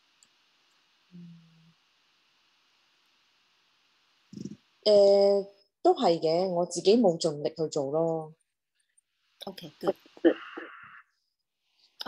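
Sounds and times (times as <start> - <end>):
person humming: 1.1 - 1.8, 4.4 - 4.6.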